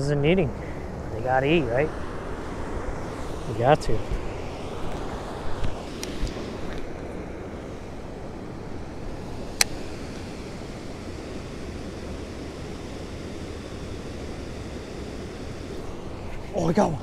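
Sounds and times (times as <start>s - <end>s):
sharp click: 9.6s - 9.8s.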